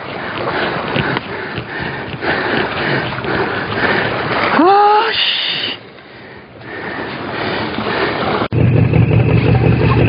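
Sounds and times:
seawater sloshing around rocks: 0.0 - 10.0
heavy breathing: 0.2 - 4.4, 5.4 - 8.5.

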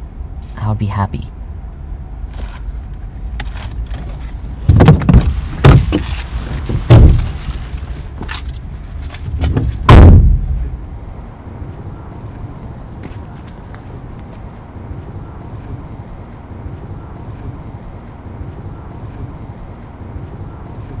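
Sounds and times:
steady low rumble: 0.0 - 21.0
car door knocks and bangs: 4.7 - 6.1, 6.7 - 7.6, 9.3 - 10.6.

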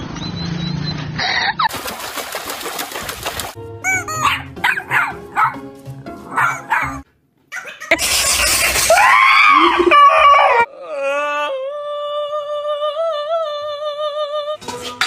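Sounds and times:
background music: 3.6 - 7.1.

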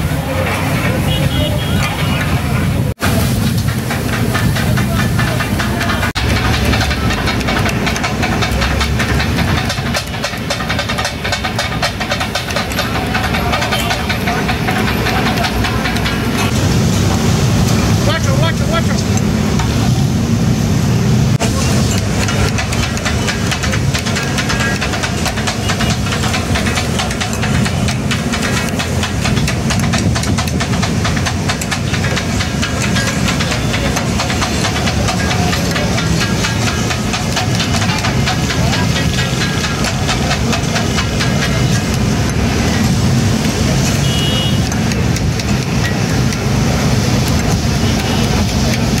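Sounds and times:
food sizzling: 0.0 - 18.0
metal blades clattering on griddle: 3.1 - 16.6, 21.4 - 44.0.

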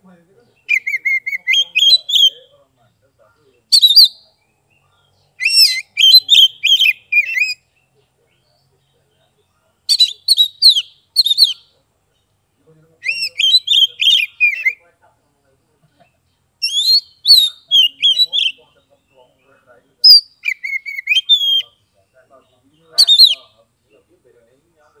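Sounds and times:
songbird whistling: 0.6 - 2.5, 3.7 - 4.3, 5.4 - 7.7, 9.9 - 11.7, 13.0 - 14.8, 16.6 - 18.8, 20.0 - 21.8, 23.0 - 23.6.

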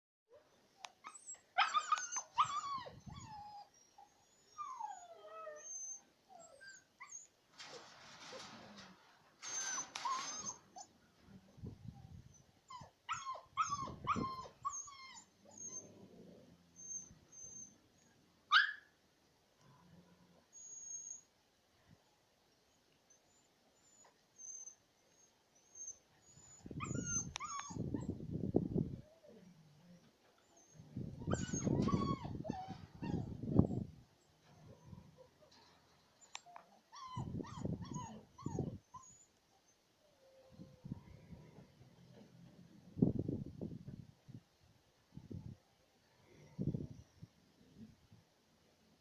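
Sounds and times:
puppies whimpering and yelping: 0.8 - 7.4, 9.4 - 11.0, 12.1 - 16.1, 16.7 - 18.8, 20.5 - 21.3, 23.3 - 28.2, 29.2 - 35.6, 36.4 - 39.4.

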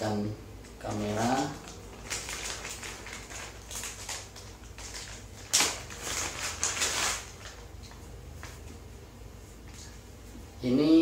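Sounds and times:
plastic bag crinkling: 0.7 - 8.0.

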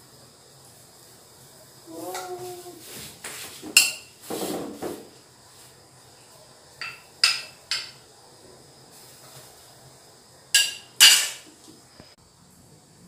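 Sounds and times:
metal ladle clinking: 10.6 - 11.4.

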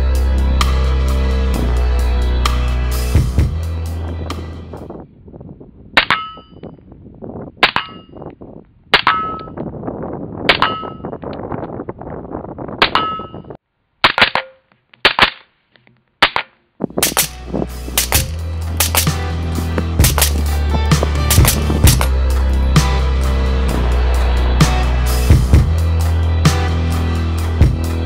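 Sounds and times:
background music: 0.0 - 5.0, 17.0 - 28.0
rifle shots with metallic ring: 17.0 - 17.3, 18.0 - 19.1.

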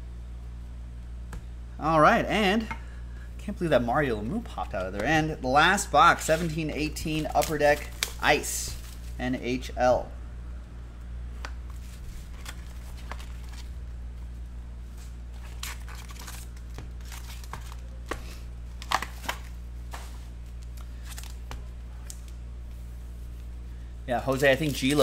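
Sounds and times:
steady low hum: 0.0 - 25.0
foil packs crinkling: 6.2 - 9.2, 11.8 - 13.8, 15.4 - 19.5.

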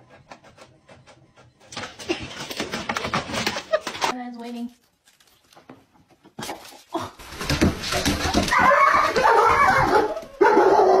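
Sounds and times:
dog crying high and wavering: 8.4 - 11.0.

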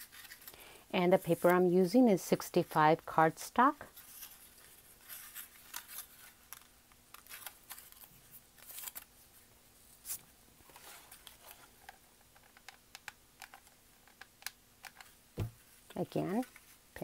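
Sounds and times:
paper rustling and clicking: 4.1 - 9.1.

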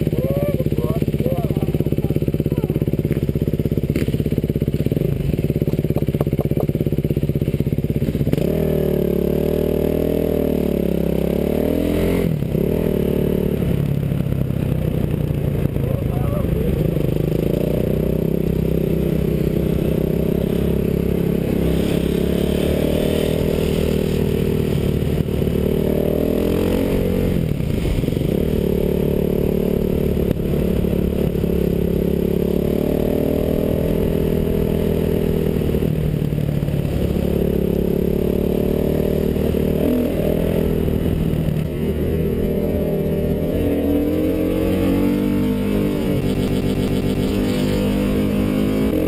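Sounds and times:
dirt bike engine revving: 0.0 - 49.0.

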